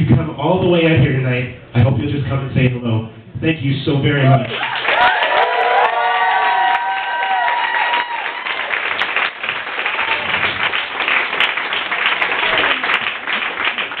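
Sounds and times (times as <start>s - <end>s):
audience applauding: 4.4s - 14.0s
voices cheering: 4.6s - 8.9s.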